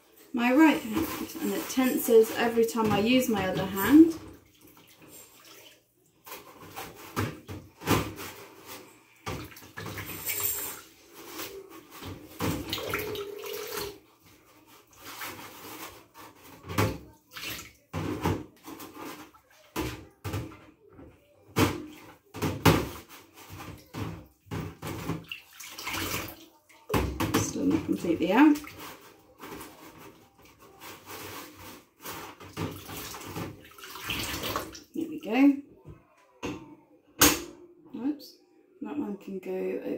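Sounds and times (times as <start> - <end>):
water sloshing in sink: 0.1 - 20.7, 21.5 - 35.6
dishes clinking in sink: 0.6 - 7.6, 8.2 - 13.9.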